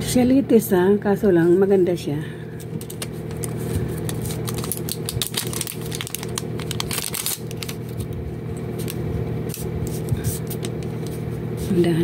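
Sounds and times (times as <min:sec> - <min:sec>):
low background hum: 0:00.0 - 0:12.0
plastic wrapping crinkling: 0:02.7 - 0:11.2.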